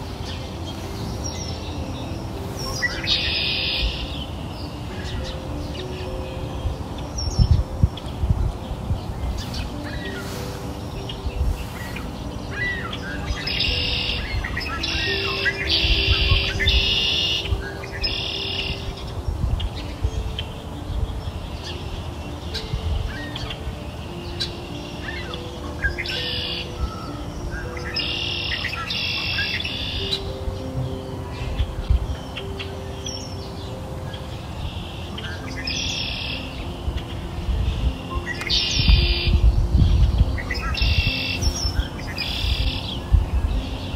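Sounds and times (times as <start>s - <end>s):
bird chirps and trills: 0.0s - 43.9s
soft background music: 0.0s - 43.9s.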